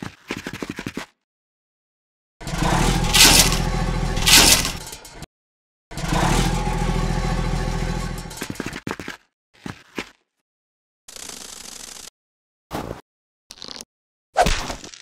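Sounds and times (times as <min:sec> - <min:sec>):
toy vehicle motor running: 0:02.4 - 0:05.0
saw grinding into ice: 0:02.4 - 0:05.3, 0:05.9 - 0:08.6.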